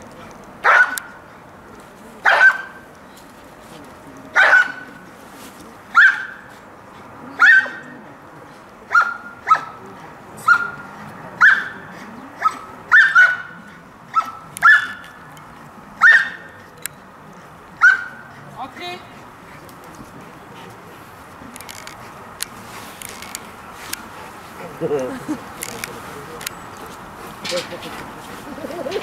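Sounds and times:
dog barking: 0.6s - 1.1s, 2.2s - 2.8s, 4.4s - 4.9s, 6.0s - 6.4s, 7.4s - 7.9s, 8.9s - 9.7s, 10.4s - 10.8s, 11.4s - 11.8s, 12.4s - 15.0s, 16.0s - 16.4s, 17.8s - 18.2s.

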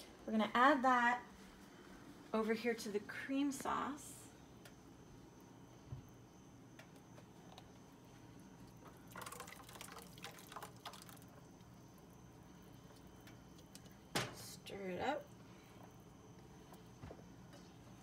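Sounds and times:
wet scraping and plopping: 8.7s - 11.4s.

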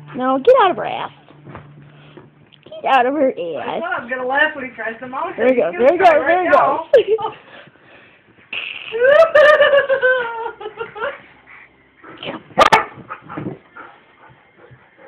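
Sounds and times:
dogs scuffling: 12.1s - 15.0s
dog barking: 12.6s - 13.1s.

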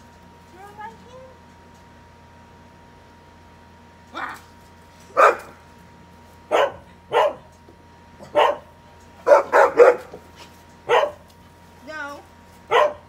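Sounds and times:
dog barking: 5.2s - 5.6s, 6.5s - 7.5s, 8.2s - 10.2s, 10.9s - 11.2s, 12.7s - 13.0s.

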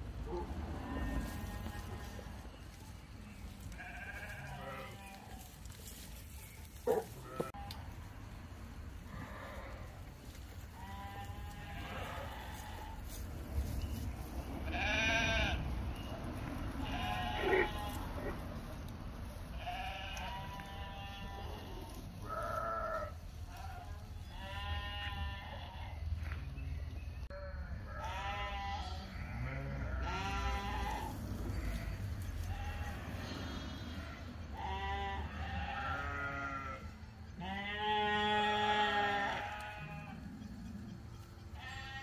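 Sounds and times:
sheep bleating: 0.8s - 2.4s, 3.7s - 5.6s, 6.8s - 7.8s, 10.7s - 13.2s, 14.6s - 16.1s, 16.8s - 18.4s, 19.5s - 26.0s, 27.3s - 40.4s, 41.6s - 42.0s.

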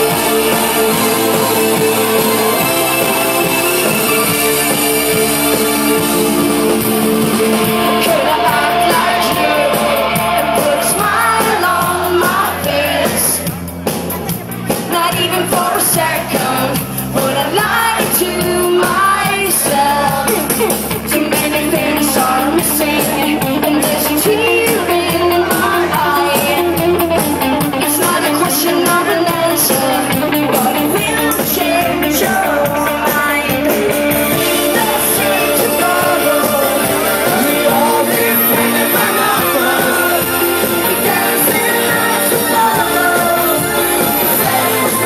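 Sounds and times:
rock band playing live: 0.0s - 45.0s
woman singing lead vocal: 7.6s - 13.4s, 14.9s - 27.1s, 27.8s - 45.0s.

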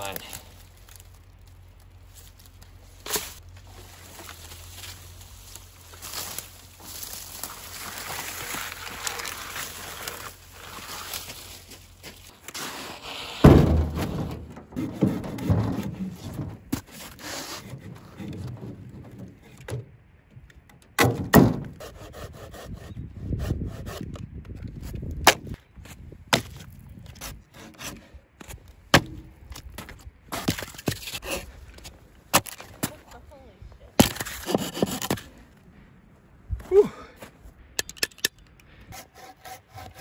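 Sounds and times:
wood rubbing and scraping: 0.6s - 20.8s, 27.0s - 33.0s, 34.0s - 35.4s, 38.7s - 40.0s
wood cracking and knocking: 13.4s - 21.8s, 26.3s - 31.2s.

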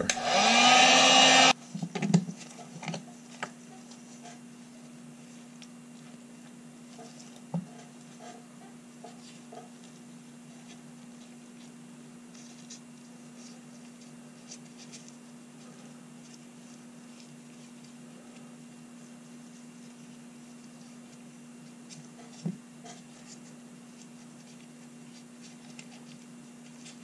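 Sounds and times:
heat gun: 0.0s - 1.6s.

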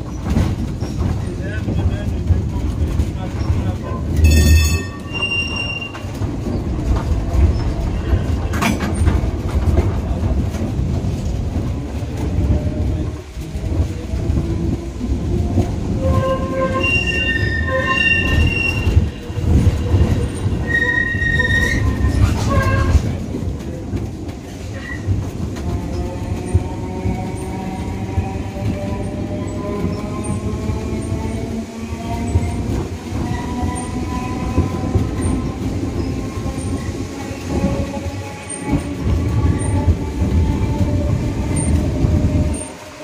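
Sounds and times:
tram rumbling on rails: 0.0s - 43.0s
tram wheels squealing: 2.9s - 9.2s, 15.9s - 23.3s.

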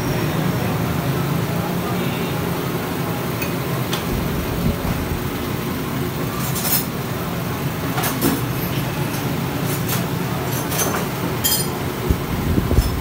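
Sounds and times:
low workshop hum: 0.0s - 13.0s.

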